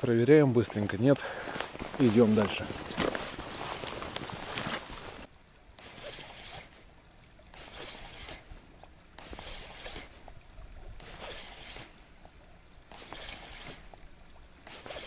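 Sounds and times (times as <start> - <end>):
footsteps swishing: 1.4 - 6.7, 9.2 - 10.2.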